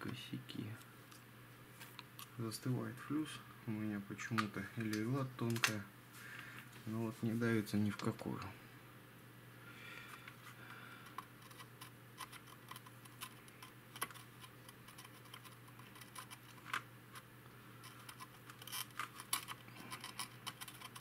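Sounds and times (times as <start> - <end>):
soldering iron clicks and scratches: 11.1 - 21.0.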